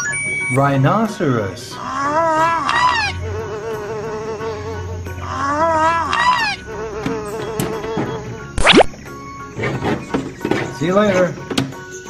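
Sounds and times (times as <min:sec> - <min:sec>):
toy microwave buzzing hum: 0:02.1 - 0:08.6.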